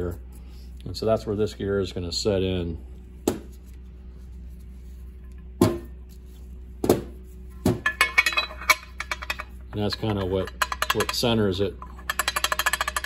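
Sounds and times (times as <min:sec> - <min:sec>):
steady low hum: 0:00.0 - 0:13.0
metal parts knocking on metal cover: 0:07.8 - 0:13.0.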